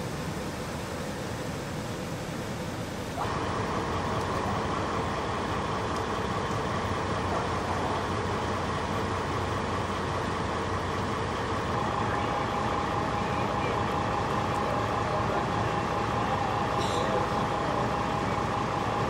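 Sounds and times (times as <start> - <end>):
constant higher hum: 0.0 - 19.0
fire engine idling: 0.0 - 19.0.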